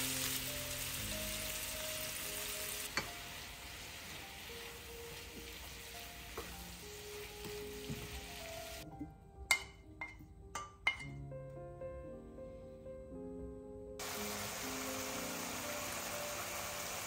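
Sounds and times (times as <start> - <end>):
broccoli sizzling in pan: 0.0 - 8.8, 14.0 - 17.0.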